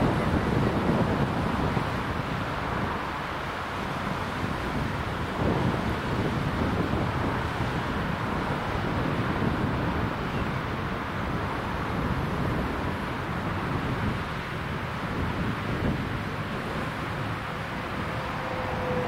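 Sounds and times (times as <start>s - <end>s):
wind buffeting microphone: 0.0s - 19.0s
cars driving past: 16.2s - 19.0s.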